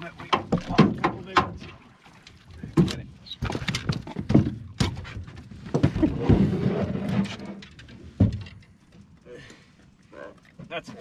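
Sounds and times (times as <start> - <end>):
thumps and knocks on boat deck: 0.2 - 1.6, 2.7 - 6.4.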